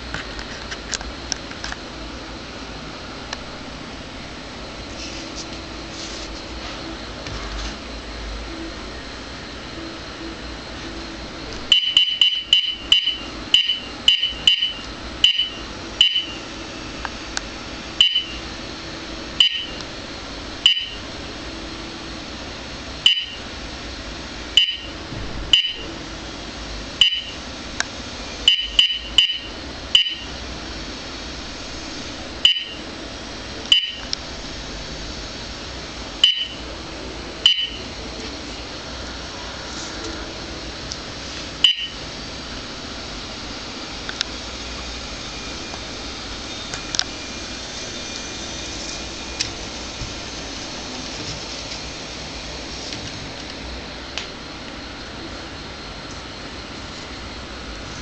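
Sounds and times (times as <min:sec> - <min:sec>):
radar detector beeps: 0:09.8 - 0:16.5, 0:18.0 - 0:18.4, 0:19.4 - 0:19.8, 0:20.6 - 0:21.1, 0:23.0 - 0:23.4, 0:24.6 - 0:25.9, 0:27.0 - 0:27.4, 0:28.4 - 0:30.4, 0:32.4 - 0:32.9, 0:33.7 - 0:34.1, 0:36.2 - 0:36.6, 0:37.4 - 0:37.9, 0:41.6 - 0:42.0.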